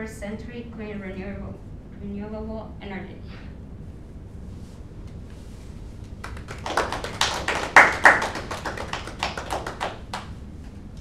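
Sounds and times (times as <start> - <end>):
people clapping: 6.0 - 10.4.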